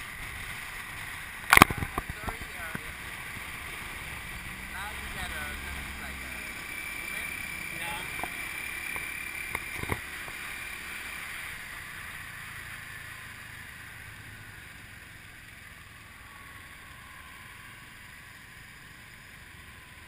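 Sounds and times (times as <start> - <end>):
motorbike engine: 0.0 - 20.0
road noise: 0.0 - 20.0
sharp clicks: 1.5 - 2.8.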